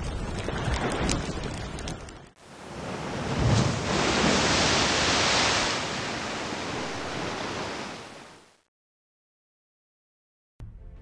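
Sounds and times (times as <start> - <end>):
ocean wave breaking: 2.4 - 8.6.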